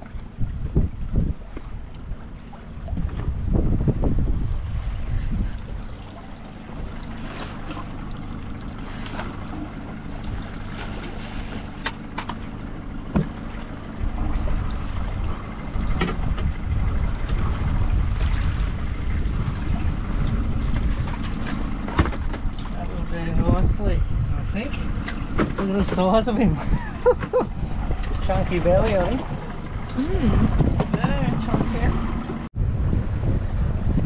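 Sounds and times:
water washing around boat: 0.0 - 34.0
wind buffeting microphone: 0.0 - 34.0
sharp knocks and clicks: 13.1 - 13.4.

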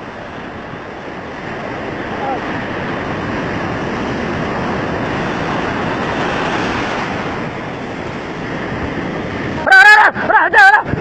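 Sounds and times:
surf breaking and foam churning: 0.0 - 11.0
man shouting: 9.6 - 10.9.

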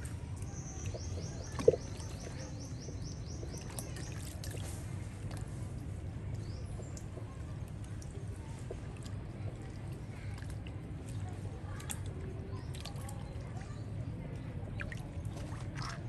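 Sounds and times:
monkeys splashing in water: 0.0 - 5.8, 8.0 - 14.0, 14.7 - 16.0
low background rumble: 0.0 - 16.0.

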